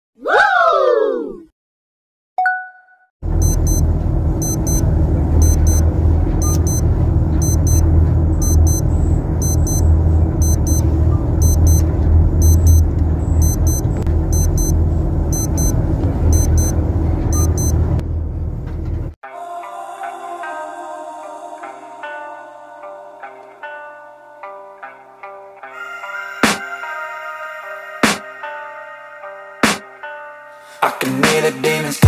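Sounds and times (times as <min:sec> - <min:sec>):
low engine rumble: 0:03.2 - 0:19.2
wristwatch alarm beeping: 0:03.4 - 0:03.8, 0:04.4 - 0:04.8, 0:05.4 - 0:05.8, 0:06.4 - 0:06.8, 0:07.4 - 0:17.8.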